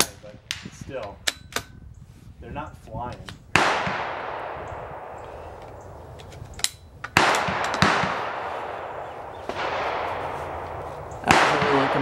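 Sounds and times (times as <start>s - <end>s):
rifle shots with echo: 3.5s - 5.3s, 7.1s - 12.0s.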